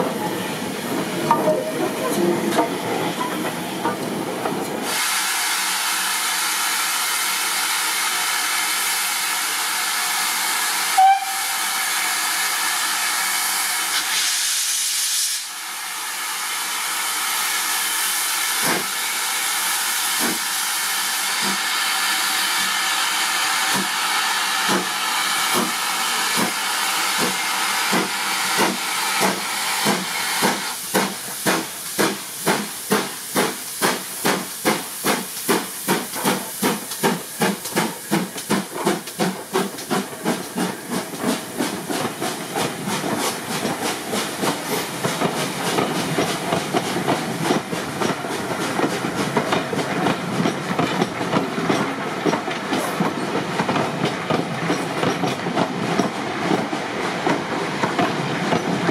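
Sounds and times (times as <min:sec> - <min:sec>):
steam hissing: 0:00.3 - 0:54.7
steam whistle blast: 0:10.9 - 0:11.9.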